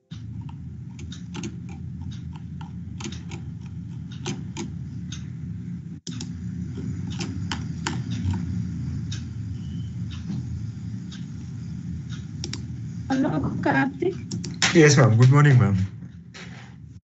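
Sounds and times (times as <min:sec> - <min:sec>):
typing on computer keyboard: 0:00.1 - 0:04.7.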